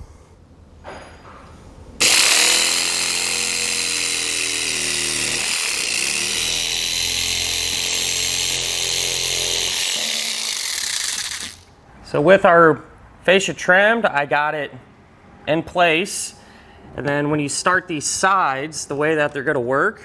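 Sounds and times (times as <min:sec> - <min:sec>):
power saw cutting plastic: 0:02.0 - 0:11.7.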